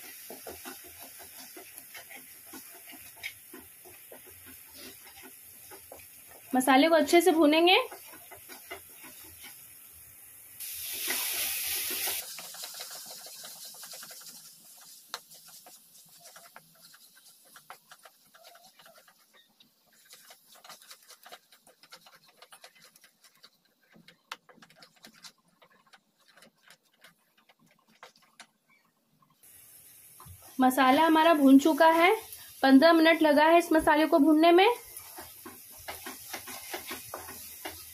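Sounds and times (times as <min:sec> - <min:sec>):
paste sizzling in oil: 0:00.0 - 0:28.1, 0:29.4 - 0:37.9
wooden spatula scraping: 0:00.0 - 0:28.9, 0:30.1 - 0:37.9
scattered crackles: 0:10.9 - 0:28.6.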